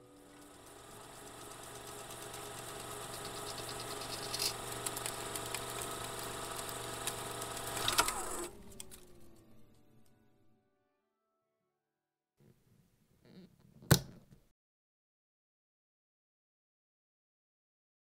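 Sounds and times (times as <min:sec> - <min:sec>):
film projector whirring clatter: 0:00.0 - 0:09.7
projector stopping clack: 0:00.0 - 0:09.8
motor winding down whine: 0:00.0 - 0:10.1.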